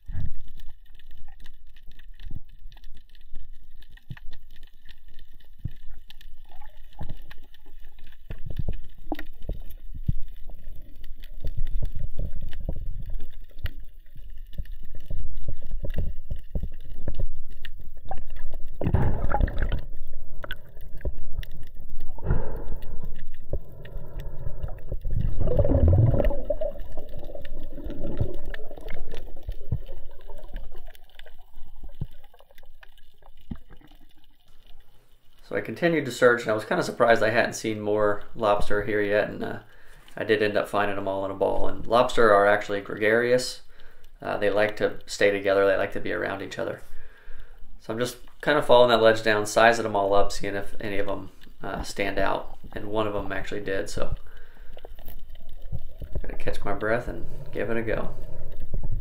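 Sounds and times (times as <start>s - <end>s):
muffled underwater water rush: 0.0s - 59.0s
water gurgling surges: 18.0s - 32.6s.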